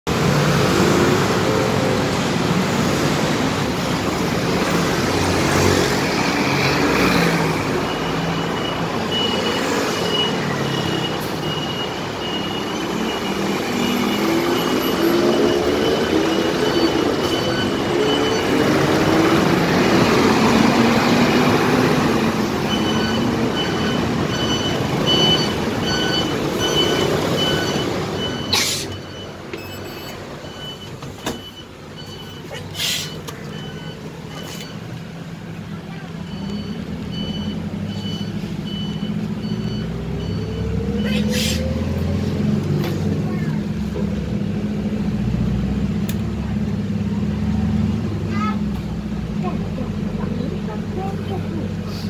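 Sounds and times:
minibus pulling in: 0:00.1 - 0:52.0
vehicle engines passing: 0:00.1 - 0:52.0
high electronic beeps: 0:07.7 - 0:20.6, 0:22.6 - 0:35.0.

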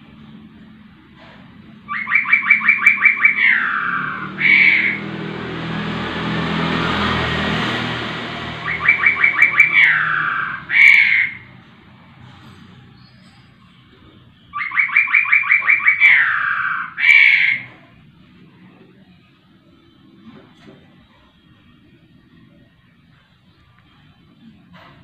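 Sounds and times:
bird singing: 0:01.9 - 0:05.3, 0:08.4 - 0:11.6, 0:12.8 - 0:17.8.

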